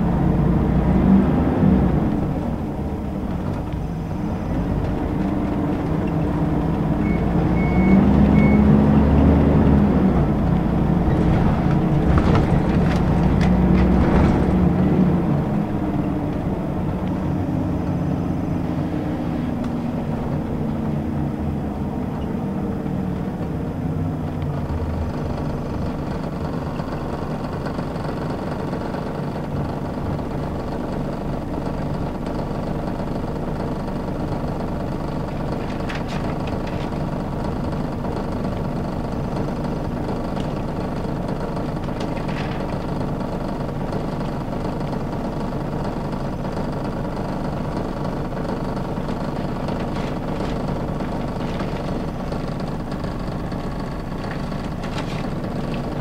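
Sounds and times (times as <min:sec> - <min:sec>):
bus diesel engine: 0:00.0 - 0:56.0.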